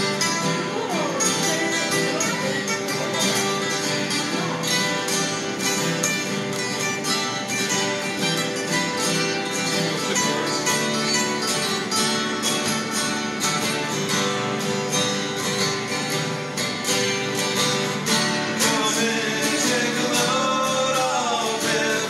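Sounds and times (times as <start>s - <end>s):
acoustic guitars strummed and picked: 0.0s - 22.0s
people singing: 17.4s - 22.0s.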